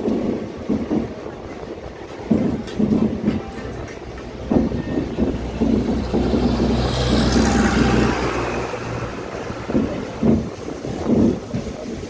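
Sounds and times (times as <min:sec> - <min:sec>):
low train rumble: 0:00.0 - 0:12.0
train wheels clattering: 0:00.0 - 0:12.0
wind rushing: 0:00.0 - 0:12.0.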